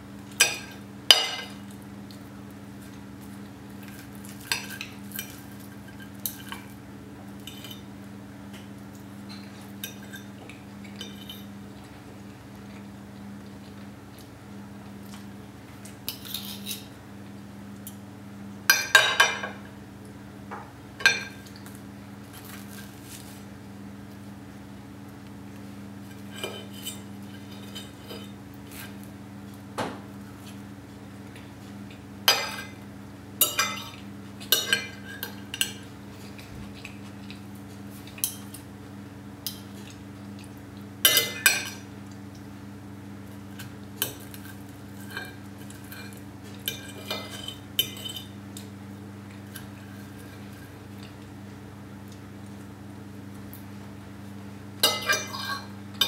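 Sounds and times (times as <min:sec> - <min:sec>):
cutlery scraping on plate: 0:11.0 - 0:11.5, 0:16.1 - 0:16.9, 0:26.1 - 0:28.9, 0:43.6 - 0:48.4, 0:54.8 - 0:55.8.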